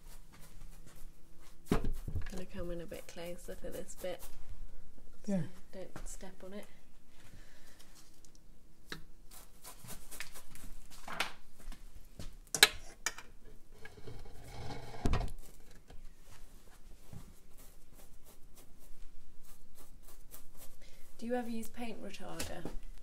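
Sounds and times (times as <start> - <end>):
paintbrush scratching on canvas: 2.4 - 4.5, 17.2 - 21.7.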